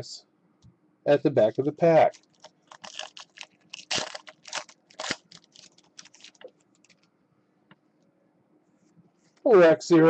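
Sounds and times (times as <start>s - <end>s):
trading cards crinkling: 1.4s - 7.1s.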